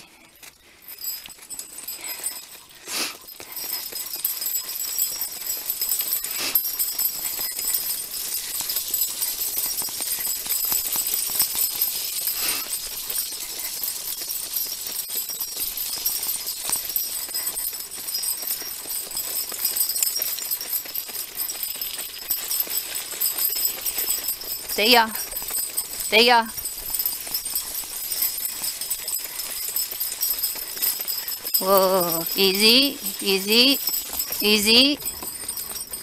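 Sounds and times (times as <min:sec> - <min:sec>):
cart rattling and jingling: 0:00.0 - 0:36.0
small ticks: 0:00.1 - 0:31.6.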